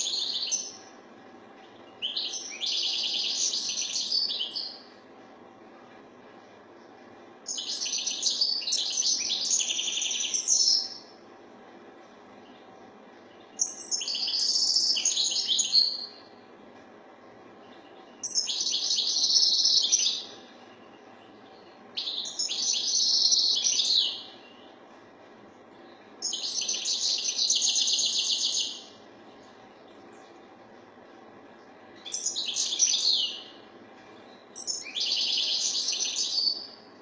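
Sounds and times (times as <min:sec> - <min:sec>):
goldfinch twittering song: 0:01.9 - 0:04.8, 0:07.5 - 0:11.0, 0:13.3 - 0:16.2, 0:17.6 - 0:24.7, 0:26.2 - 0:28.9, 0:32.0 - 0:33.6, 0:34.6 - 0:36.7.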